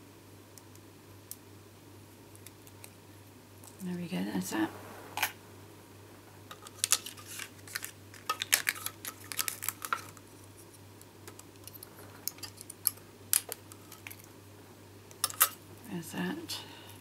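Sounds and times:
paper crackles: 0:06.7 - 0:10.3.

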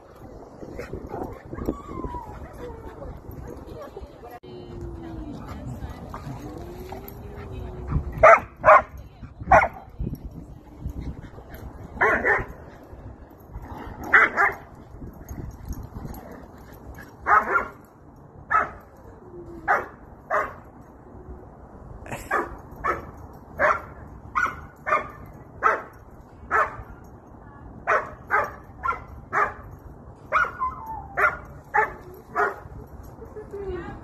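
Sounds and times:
dog barking: 0:08.2 - 0:08.9.

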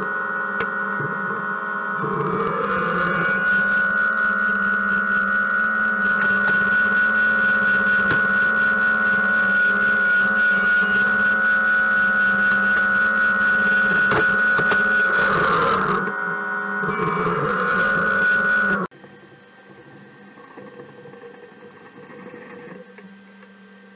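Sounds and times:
dust extraction running: 0:00.0 - 0:23.0
table saw cutting panel: 0:00.5 - 0:18.9.

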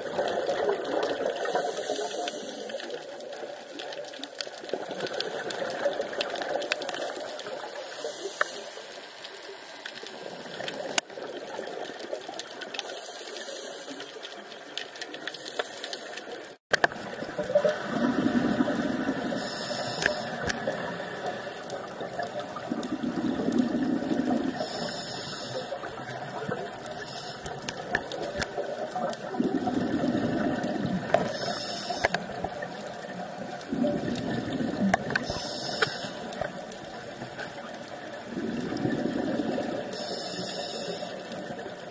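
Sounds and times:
exhaled bubbles rumbling: 0:00.0 - 0:01.6, 0:16.9 - 0:40.0
underwater crackle: 0:00.0 - 0:41.9
regulator hissing inhale: 0:01.4 - 0:03.0, 0:07.6 - 0:09.0, 0:12.8 - 0:14.2, 0:15.3 - 0:16.4, 0:19.2 - 0:21.7, 0:24.5 - 0:25.9, 0:26.9 - 0:27.8, 0:31.1 - 0:32.3, 0:35.1 - 0:36.5, 0:39.6 - 0:41.5.

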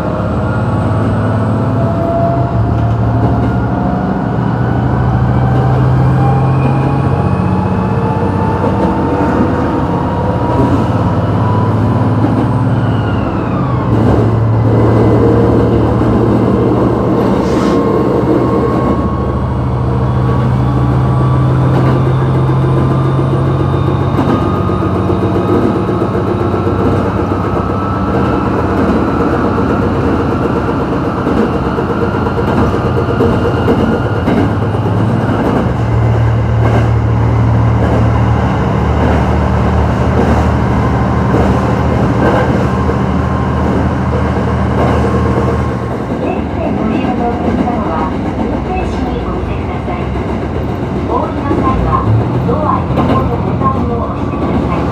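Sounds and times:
diesel engine drone: 0:00.0 - 0:54.9
rail noise: 0:00.0 - 0:54.9.

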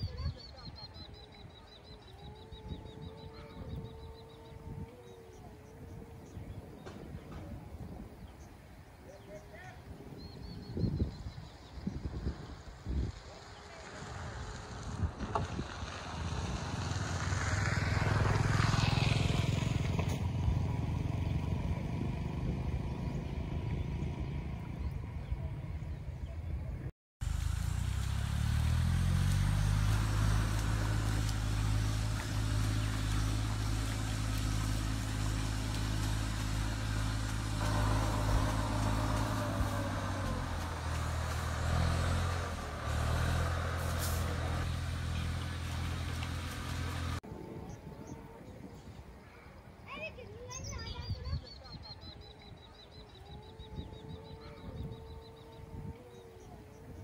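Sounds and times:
engine running: 0:12.4 - 0:48.4.

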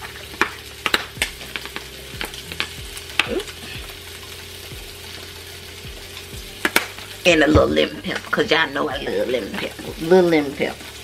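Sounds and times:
seasoning shaker clicking: 0:00.3 - 0:03.3, 0:06.1 - 0:07.1.

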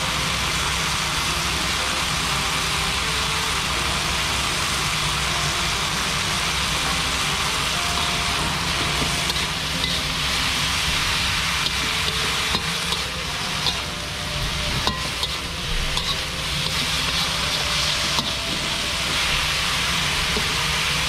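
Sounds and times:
vegetables sizzling in a wok: 0:00.0 - 0:21.0
spatula scraping a pan: 0:08.1 - 0:20.6.

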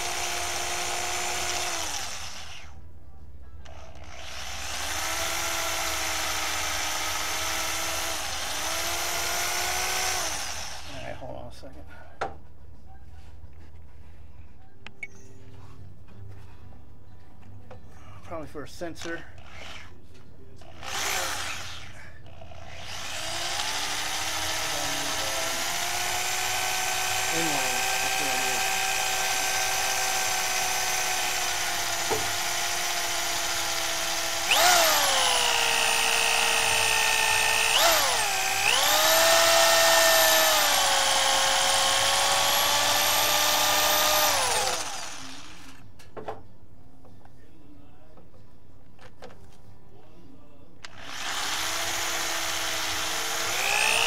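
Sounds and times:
electric drill drilling metal: 0:00.0 - 0:02.8, 0:03.7 - 0:11.1, 0:19.0 - 0:20.0, 0:20.6 - 0:45.8, 0:50.9 - 0:54.0.

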